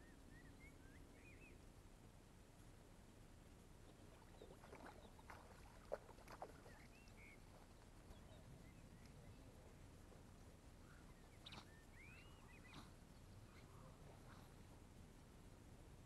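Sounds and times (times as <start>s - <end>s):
faint bird chirps: 0.0s - 1.6s, 6.4s - 9.7s, 10.8s - 14.7s
water splashes: 3.9s - 8.1s.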